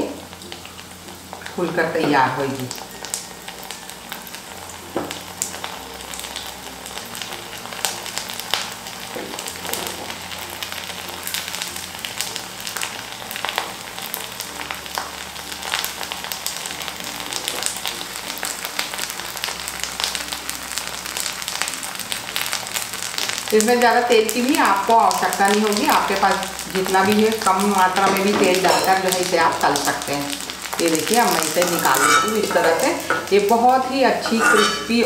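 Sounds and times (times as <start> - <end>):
food deep-frying in hot oil: 0.0 - 35.0
wooden spatula stirring in oil: 30.5 - 33.3.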